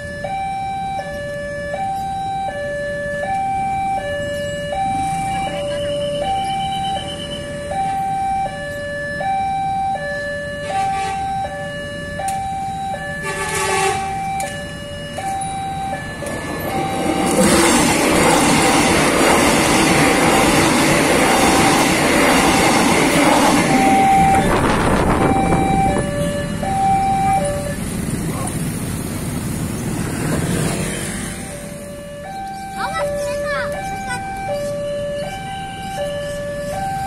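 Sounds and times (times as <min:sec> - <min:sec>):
level-crossing two-tone alarm: 0:00.0 - 0:27.9, 0:31.2 - 0:37.0
electric train passing: 0:00.0 - 0:37.0
short horn: 0:13.2 - 0:14.1.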